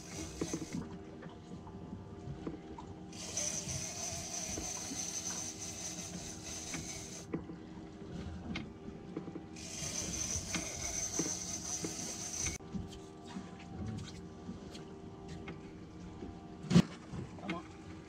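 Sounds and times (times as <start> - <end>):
fishing reel whirring: 0.0 - 1.0, 3.1 - 7.4, 9.6 - 12.6.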